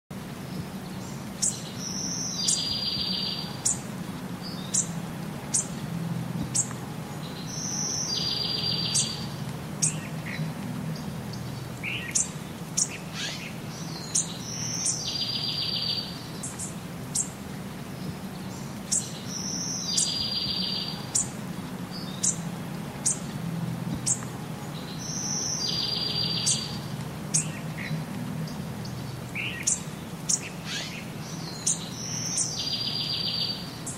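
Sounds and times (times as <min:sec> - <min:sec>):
small birds chirping: 0:00.2 - 0:33.9
buzzy high bird trill: 0:25.0 - 0:27.9.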